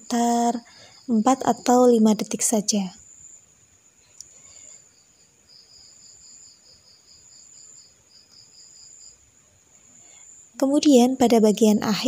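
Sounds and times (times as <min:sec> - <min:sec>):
high insect trill: 0:00.0 - 0:12.0
insect chirping pulses: 0:00.0 - 0:12.0.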